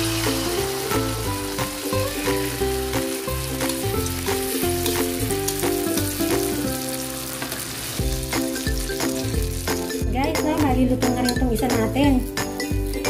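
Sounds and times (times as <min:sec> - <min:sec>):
omelette sizzling in hot oil: 0:00.0 - 0:10.1
background music with beat and bass: 0:08.0 - 0:13.0.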